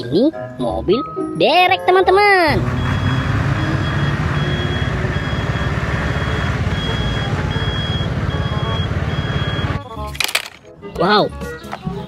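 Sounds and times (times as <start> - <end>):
truck engine rumbling: 2.3 - 10.8.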